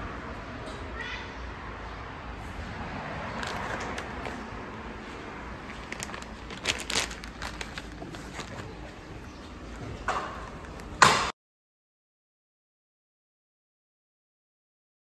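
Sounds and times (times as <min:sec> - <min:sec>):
sharp plastic crackles: 0:03.3 - 0:04.5, 0:05.6 - 0:11.3
plastic packet crinkling: 0:03.4 - 0:04.4, 0:05.6 - 0:09.0.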